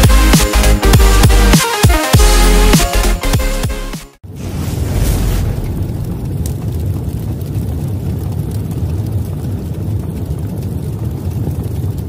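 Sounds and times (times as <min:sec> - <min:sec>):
deep rumble: 0:04.2 - 0:12.0.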